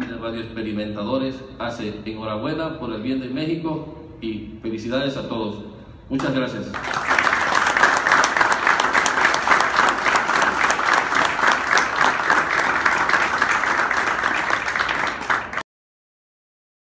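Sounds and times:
crowd applauding: 6.7 - 15.6.

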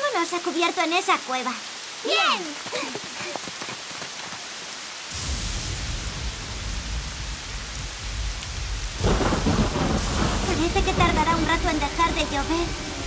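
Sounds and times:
rain falling: 0.0 - 13.0
rolling thunder: 5.1 - 13.0.

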